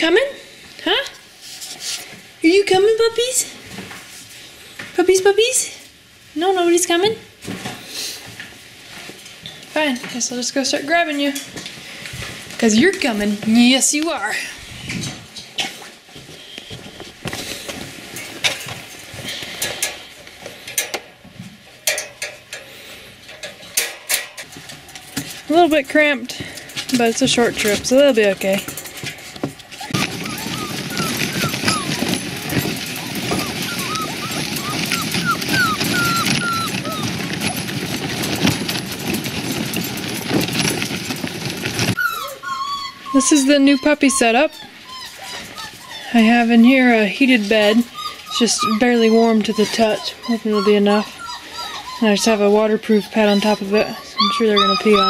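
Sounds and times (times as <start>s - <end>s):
wire dog crate rattling: 23.4s - 42.4s
wagon wheels rumbling on snow: 24.6s - 42.3s
puppies whimpering: 29.7s - 55.0s.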